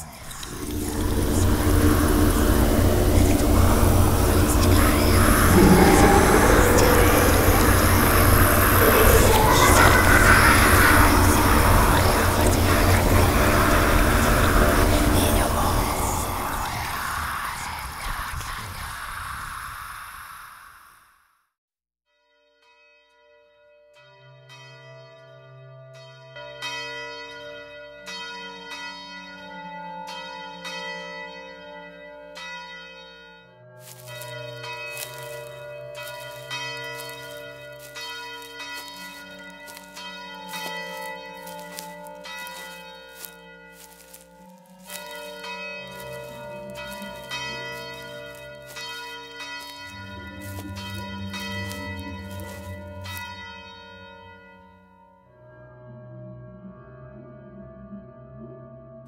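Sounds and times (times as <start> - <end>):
low droning tone: 0.0 - 17.6, 38.9 - 53.9
low steady hum: 0.1 - 17.0
bells ringing: 0.5 - 16.6, 26.0 - 55.1.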